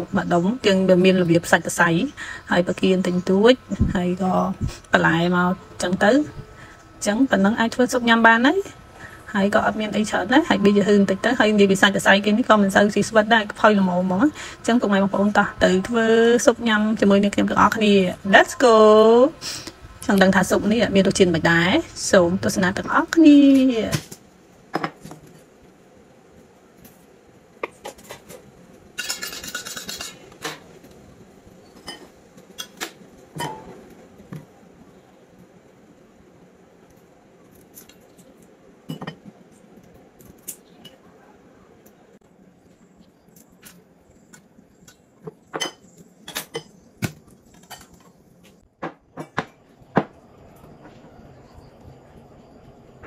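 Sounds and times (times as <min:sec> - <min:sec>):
steel bowls clinking on table: 0:29.0 - 0:30.6.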